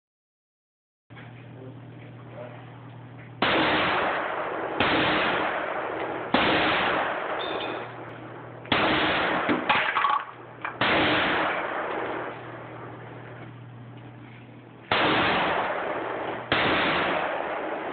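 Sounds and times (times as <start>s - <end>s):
rifle shots with echo: 3.4s - 13.4s, 14.9s - 17.9s.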